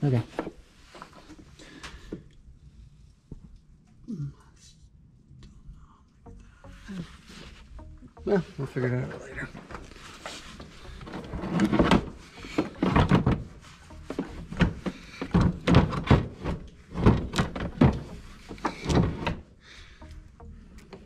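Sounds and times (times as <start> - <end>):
metal parts clunking and scraping: 9.4 - 19.4.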